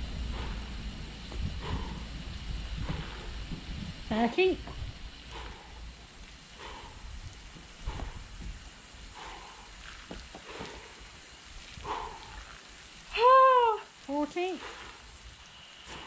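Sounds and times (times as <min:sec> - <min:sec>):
woman grunting: 0:13.1 - 0:14.7
woman crying out: 0:13.2 - 0:13.9.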